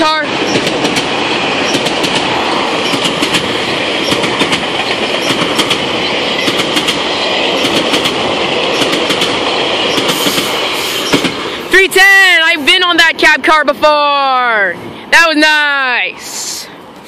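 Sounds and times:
train wheels rumbling on rails: 0.0 - 13.9
wheels clicking over rail joints: 0.3 - 11.6.

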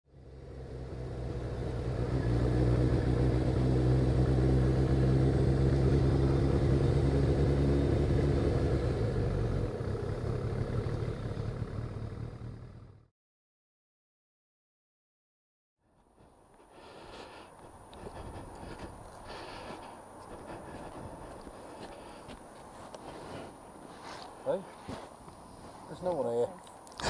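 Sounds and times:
motorcycle engine rumble: 0.1 - 13.1, 16.0 - 26.3.

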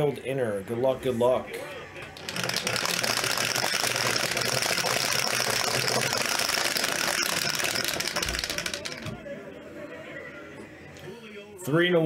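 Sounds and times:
dice rattling in plastic dome: 2.1 - 9.2.

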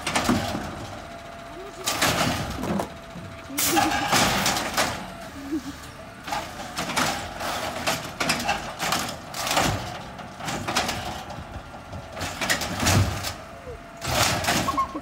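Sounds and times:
knocks of trash cart: 0.0 - 0.9, 7.9 - 13.4, 14.0 - 15.0
garbage truck engine running: 0.0 - 15.0.

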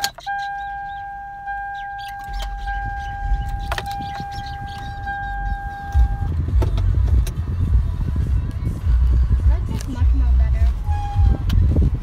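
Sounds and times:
car warning chime: 0.0 - 6.4
low rumble: 2.2 - 12.0.

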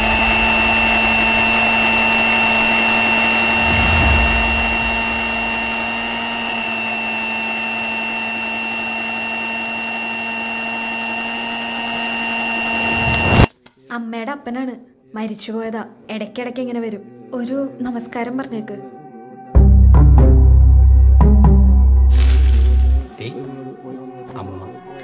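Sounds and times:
mixer grinder high whine: 0.0 - 13.5, 22.1 - 23.1.

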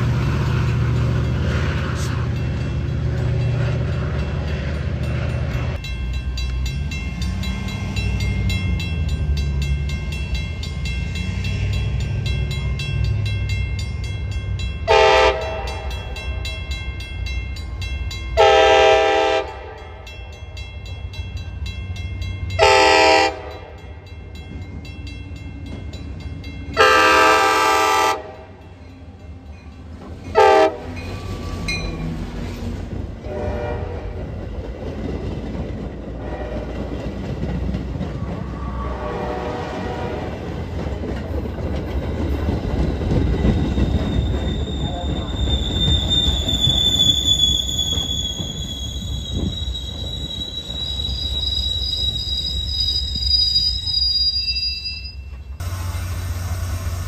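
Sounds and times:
low train rumble: 0.0 - 57.0
locomotive horn blasts: 14.9 - 16.0, 18.4 - 19.8, 22.6 - 23.8, 26.8 - 28.5, 30.3 - 30.9, 33.2 - 34.2, 36.2 - 36.8, 38.5 - 40.4.

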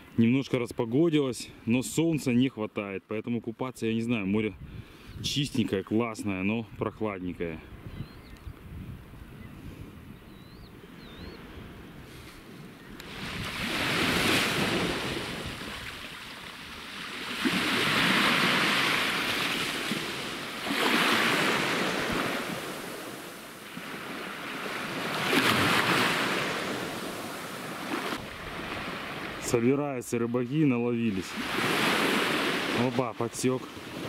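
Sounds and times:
wind on microphone: 4.4 - 5.5, 6.6 - 23.0
waves washing onto sand: 12.0 - 34.0.

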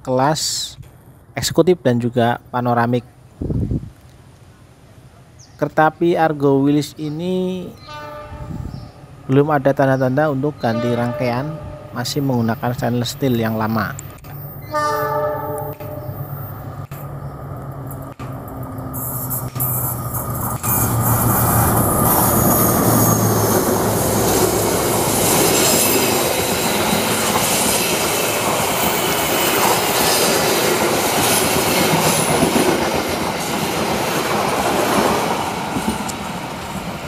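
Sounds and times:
diesel locomotive engine hum: 6.3 - 37.0
high flange squeal: 10.5 - 12.4, 14.3 - 16.7, 18.9 - 30.5
train wheels clattering over rails: 17.7 - 37.0.

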